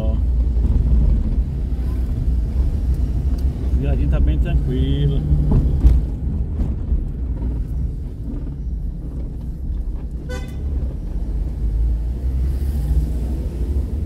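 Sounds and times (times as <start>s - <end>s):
car engine and tyre rumble: 0.0s - 14.0s
car horn beep: 10.2s - 10.7s.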